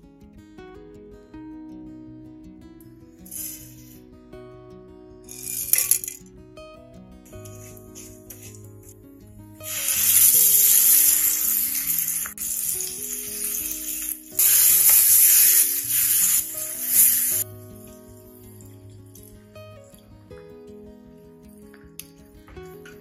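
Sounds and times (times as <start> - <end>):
soft background music: 0.0 - 23.0
paste sizzling in hot oil: 5.3 - 6.1, 9.6 - 17.4.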